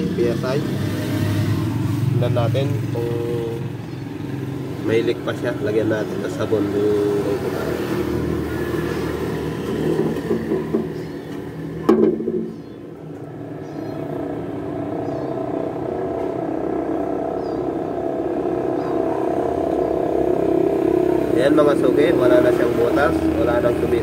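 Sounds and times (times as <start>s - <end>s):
sharp knock: 11.8s - 12.6s.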